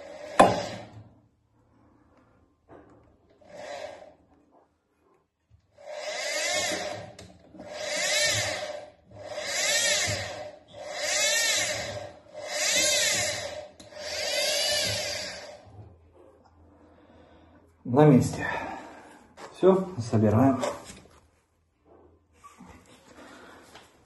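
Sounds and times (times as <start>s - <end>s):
washing machine drum whirring: 5.7s - 16.2s.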